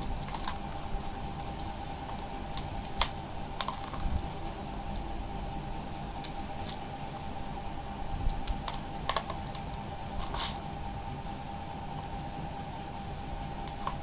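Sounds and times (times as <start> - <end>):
faint hum: 0.0 - 14.0
plastic toy clicking and rattling: 0.2 - 5.1, 8.5 - 11.4.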